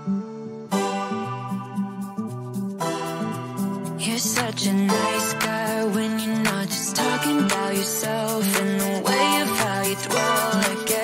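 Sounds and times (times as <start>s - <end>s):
background pop music: 0.0s - 11.0s.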